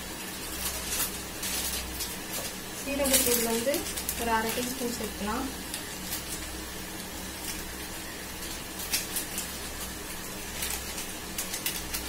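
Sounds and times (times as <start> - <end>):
vegetables sizzling in a pan: 0.0 - 12.0.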